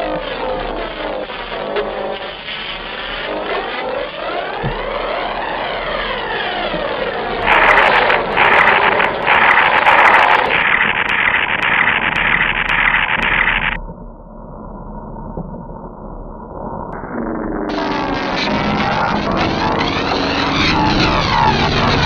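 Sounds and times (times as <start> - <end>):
electronic sweeping tones: 1.1 - 13.8, 17.0 - 22.0
loud hissing noise: 7.4 - 13.8, 17.7 - 22.0
sharp electronic clicks: 7.4 - 13.8.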